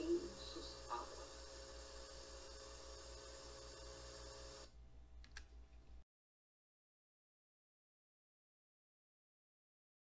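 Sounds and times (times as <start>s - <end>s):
recording hiss: 0.0s - 3.6s
low electrical hum: 0.0s - 6.0s
sharp click: 5.2s - 5.5s.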